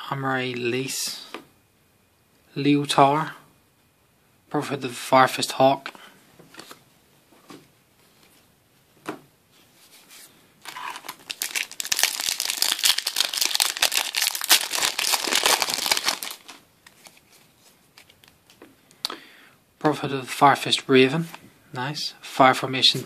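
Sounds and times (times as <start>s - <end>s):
foil wrapper crinkling and tearing: 10.6s - 17.2s.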